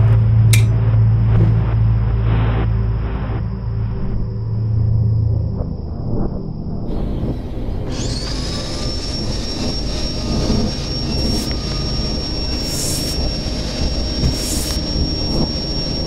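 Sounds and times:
vacuum cleaner motor whining: 6.9 - 16.0.

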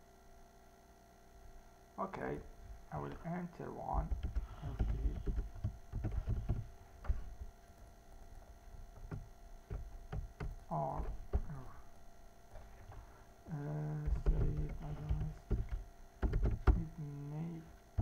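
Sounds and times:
faint mains hum: 0.0 - 18.0
steady hummed tone: 0.0 - 18.0
keyboard and mouse clicks: 4.1 - 7.2, 14.0 - 16.9.

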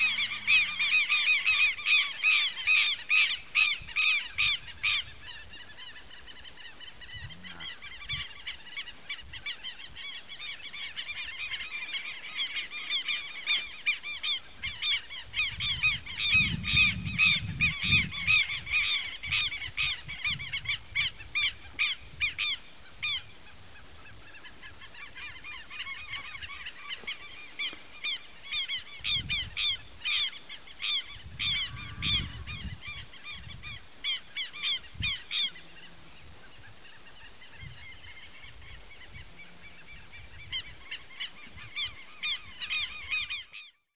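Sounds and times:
birds making harsh calls: 0.0 - 22.5, 24.1 - 38.9.

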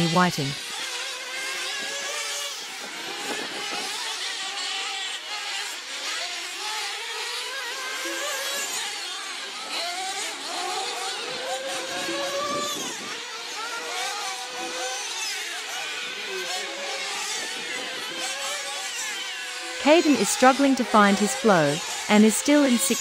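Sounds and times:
model car engines revving: 0.6 - 23.0.

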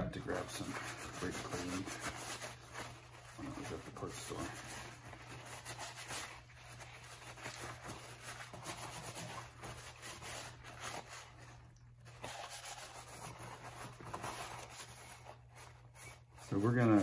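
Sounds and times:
paper towel wiping metal housing: 0.0 - 11.4, 12.2 - 17.0.

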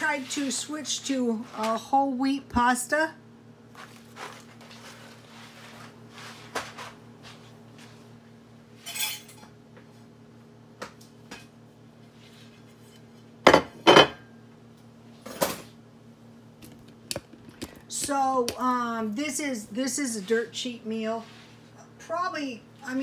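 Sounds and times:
plate clattering on counter: 13.5 - 14.2.

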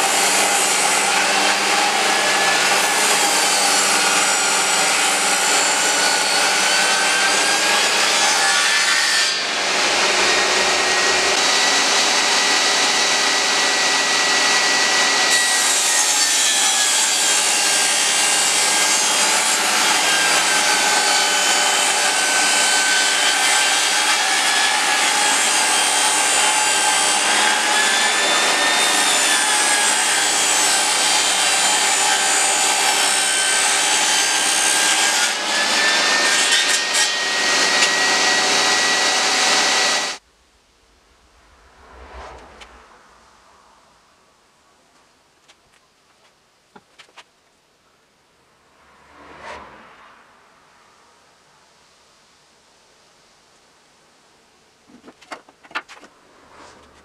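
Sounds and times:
table saw cutting wood: 0.0 - 40.2.

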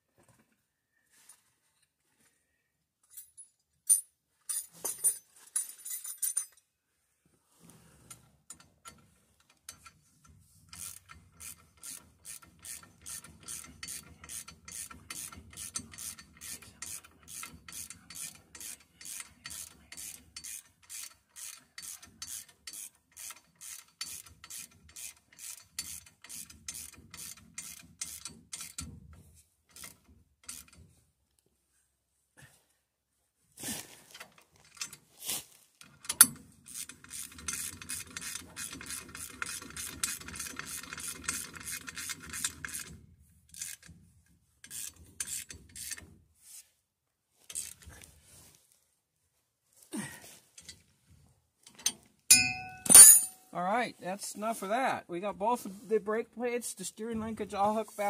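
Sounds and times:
ratchet wrench clicking: 10.7 - 28.9, 29.7 - 30.8, 35.8 - 44.0, 44.6 - 46.1, 47.5 - 47.9.

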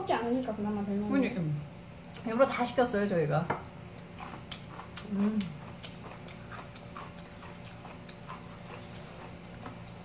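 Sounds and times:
chewing: 3.9 - 10.0.

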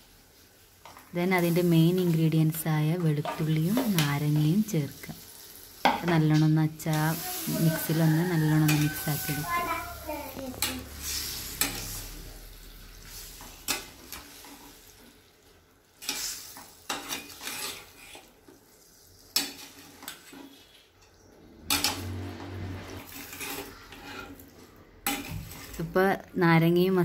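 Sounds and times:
light sizzle: 0.0 - 27.0
spoon scraping and clanking on steel pan: 3.0 - 4.5, 5.8 - 9.6, 10.5 - 12.4, 13.0 - 15.0, 16.0 - 18.6, 19.3 - 25.9.

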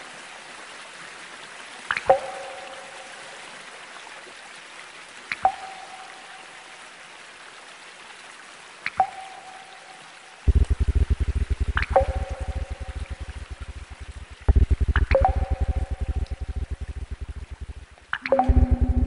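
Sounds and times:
water drops plinking: 1.9 - 3.0, 5.4 - 6.2, 8.9 - 19.0.

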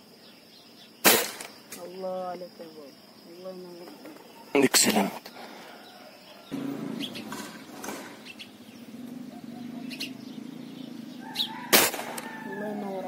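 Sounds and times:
faint bird chirps: 0.0 - 13.0
rifle shot: 1.0 - 1.5, 11.7 - 12.3.

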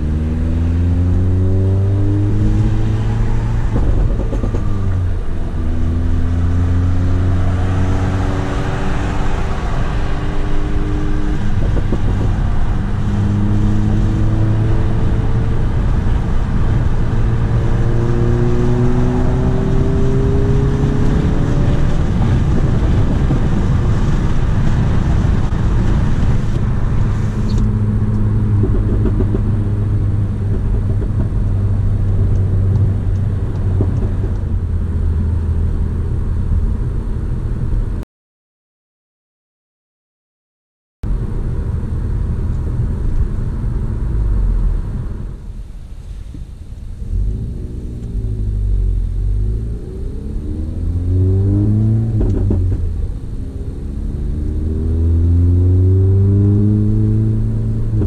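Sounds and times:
car engine accelerating through gears: 0.0 - 37.6, 46.9 - 58.0.

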